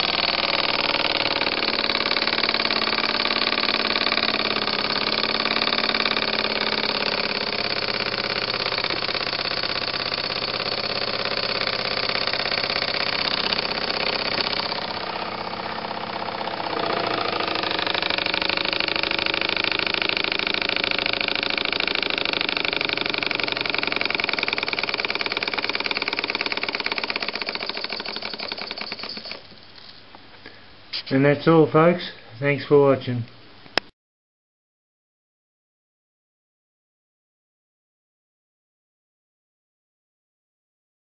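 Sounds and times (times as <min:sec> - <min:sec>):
steam engine exhaust chuffing: 0:00.0 - 0:29.4.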